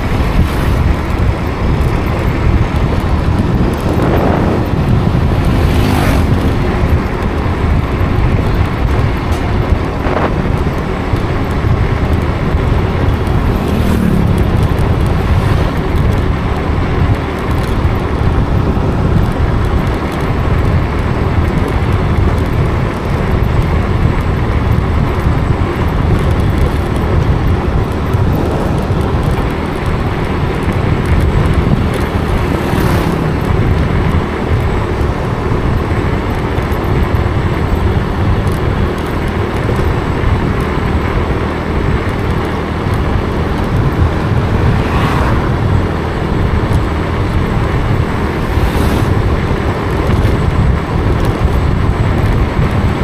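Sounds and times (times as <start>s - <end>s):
vehicle road noise: 0.0s - 53.0s.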